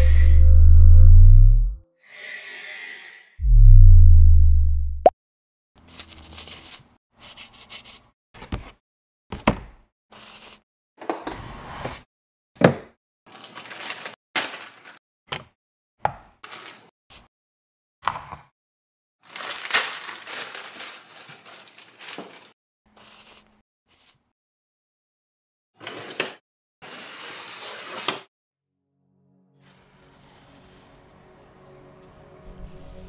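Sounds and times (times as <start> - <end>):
plastic packaging crinkling: 13.3 - 15.0, 16.5 - 16.9, 19.2 - 22.6.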